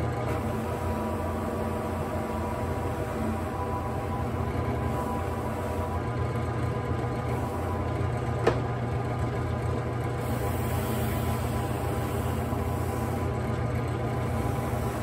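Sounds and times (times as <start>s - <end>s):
drill press running: 0.0s - 15.0s
leather buffed on pad: 14.2s - 15.0s.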